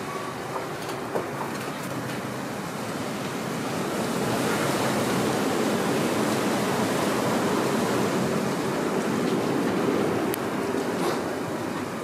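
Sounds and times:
distant traffic: 0.0s - 12.0s
wind: 0.0s - 12.0s.

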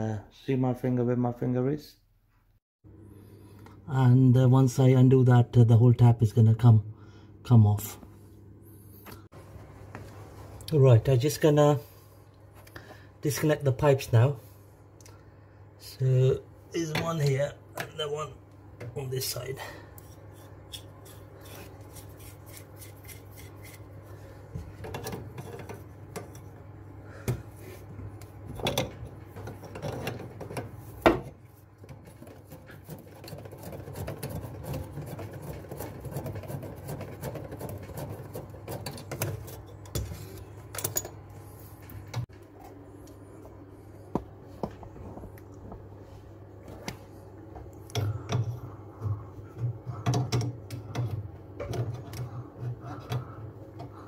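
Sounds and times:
low steady hum: 2.9s - 54.0s.

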